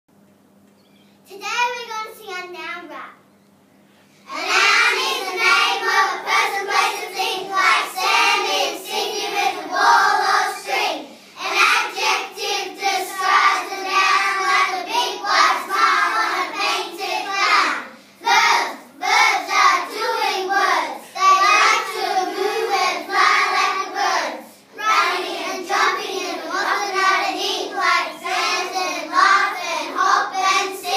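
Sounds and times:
children singing in unison: 4.3 - 30.9.

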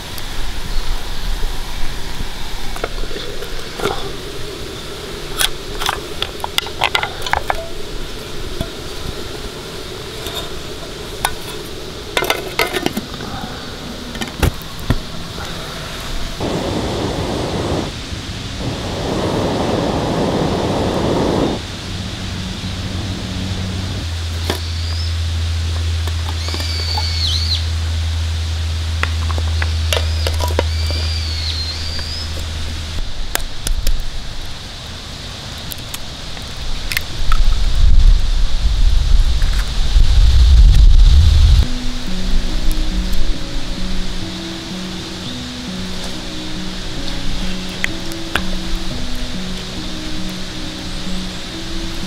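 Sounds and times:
hiss: 0.0 - 25.4
steady low rumble: 0.0 - 35.5, 36.4 - 52.0
high bird chirps: 24.6 - 25.2, 26.4 - 27.7, 29.5 - 32.5.

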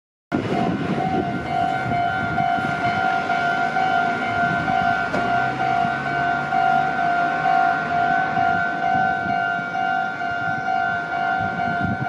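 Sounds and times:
level crossing warning bell: 0.4 - 12.0.

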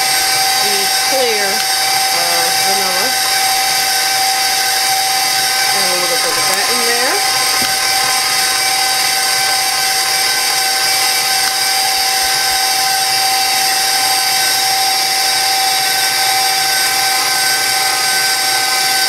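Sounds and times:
stand mixer motor whine: 0.0 - 19.0.

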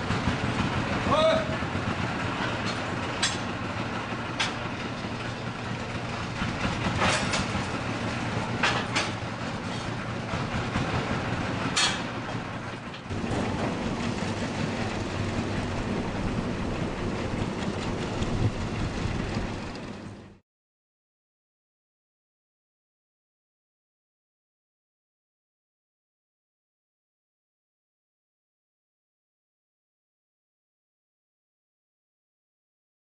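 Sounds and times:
metal carts clanking: 0.0 - 20.1
tractor engines running: 0.0 - 20.4.

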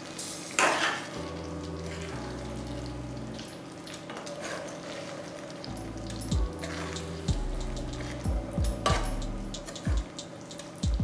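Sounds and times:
curry sizzling in a pan: 0.0 - 8.2
stirring in a pan: 0.2 - 7.3.

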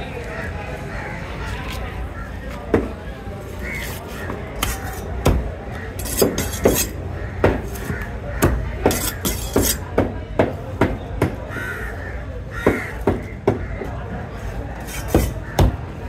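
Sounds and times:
knife chopping fish: 4.6 - 10.5, 14.8 - 15.8
crow cawing: 7.2 - 8.7, 11.5 - 13.9.

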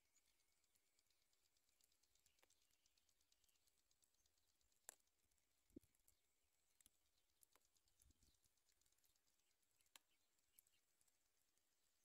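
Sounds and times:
faint clicks and ticks: 0.0 - 12.0.

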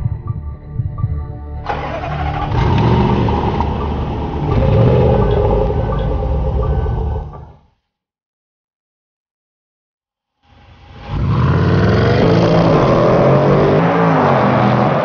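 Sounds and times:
car engine accelerating: 1.7 - 7.6, 10.9 - 15.0.

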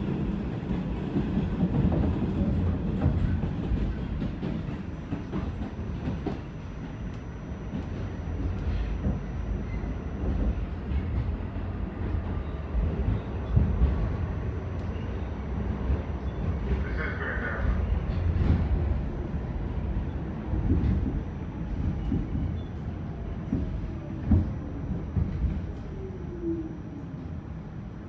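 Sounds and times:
subway car rumble: 0.0 - 28.0.

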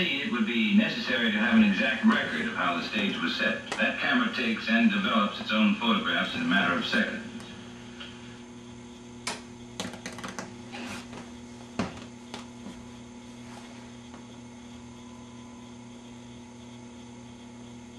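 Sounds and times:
television clicks and crackles: 0.0 - 8.2, 9.2 - 12.7
steady mains hum: 0.0 - 17.9.

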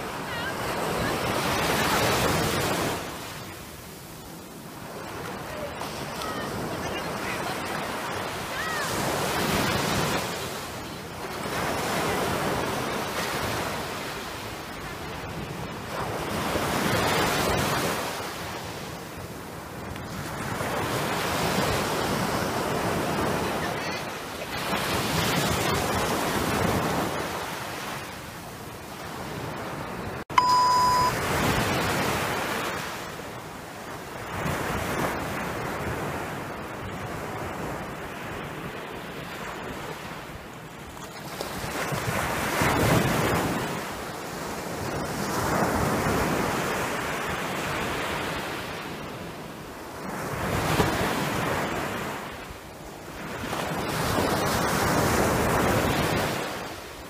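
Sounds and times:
waves breaking on beach: 0.0 - 57.0
brief high beep: 30.3 - 31.2.

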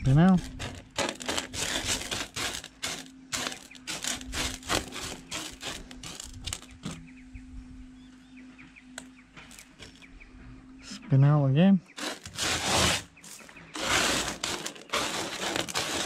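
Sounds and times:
gravel scraping on metal: 0.0 - 7.0, 9.4 - 10.1, 11.9 - 16.0.

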